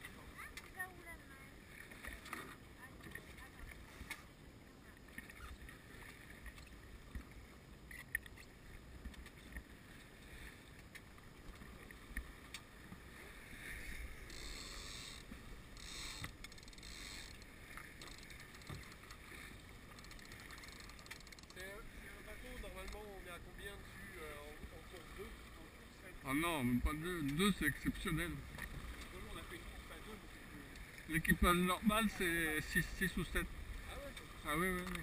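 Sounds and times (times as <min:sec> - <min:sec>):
water rushing along hull: 0:00.0 - 0:35.0
small clicks: 0:14.3 - 0:19.2, 0:19.9 - 0:21.6, 0:34.7 - 0:35.0.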